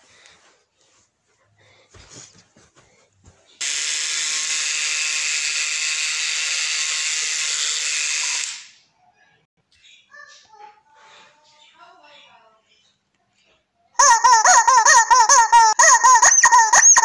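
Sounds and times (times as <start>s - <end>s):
electric toothbrush buzzing: 3.6s - 8.8s.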